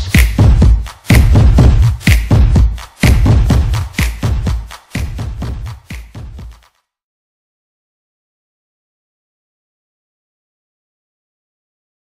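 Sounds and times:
electronic dance music: 0.0s - 6.8s.

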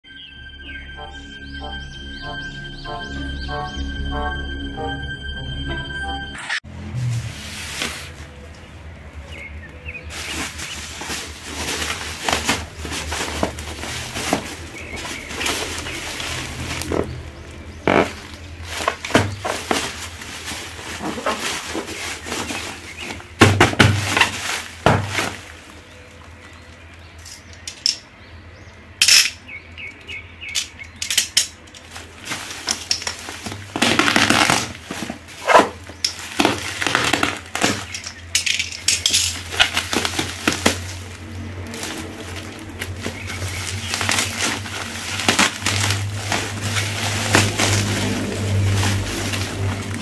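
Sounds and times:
bubble wrap crinkling and tearing: 7.1s - 8.6s, 9.8s - 26.9s, 31.8s - 50.0s.

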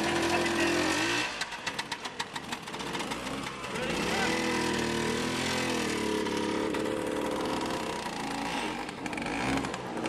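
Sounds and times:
motor scooters riding past: 0.0s - 10.0s.

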